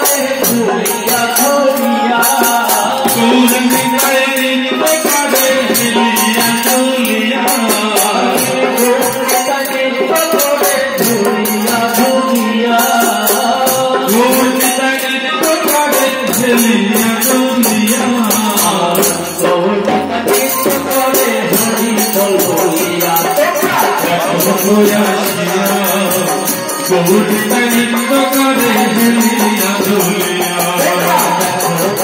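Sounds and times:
chant singing: 0:00.0 - 0:32.0
electronic keyboard: 0:00.0 - 0:32.0
hand drum: 0:00.0 - 0:32.0
small cymbals jingling: 0:20.3 - 0:32.0.

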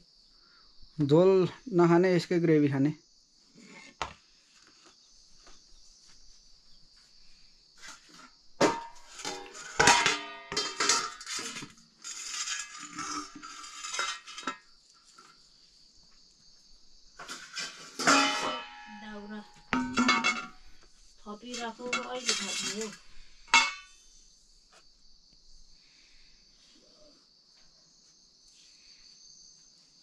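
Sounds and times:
crickets chirping: 0:00.0 - 0:30.0
blade clinking on metal tray: 0:08.7 - 0:14.6, 0:17.3 - 0:20.6, 0:21.5 - 0:23.9.

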